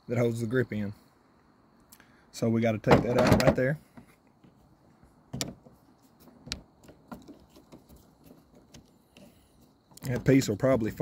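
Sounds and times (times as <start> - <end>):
handling noise: 2.8 - 10.5.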